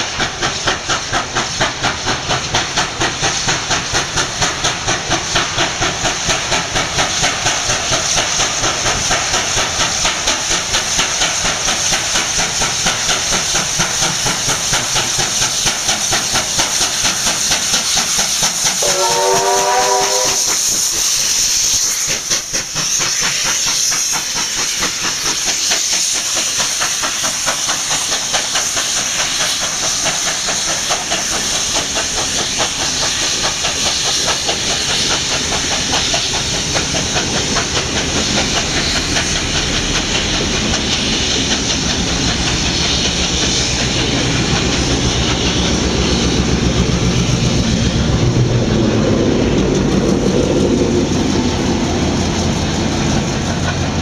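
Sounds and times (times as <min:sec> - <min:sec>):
steam locomotive hissing: 0:00.0 - 0:54.0
train wheels clattering: 0:00.0 - 0:54.0
diesel engine rumble: 0:30.5 - 0:54.0.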